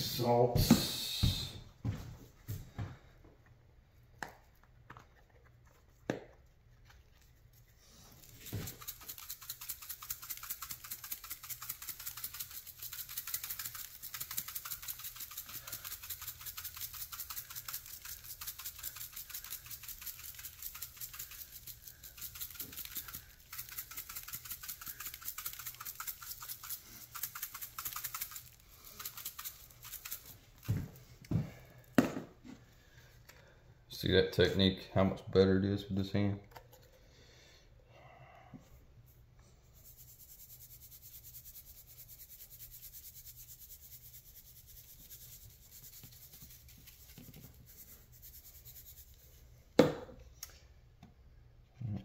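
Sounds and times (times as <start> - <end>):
spice shaker rasping rattle: 7.3 - 30.8, 39.7 - 49.5.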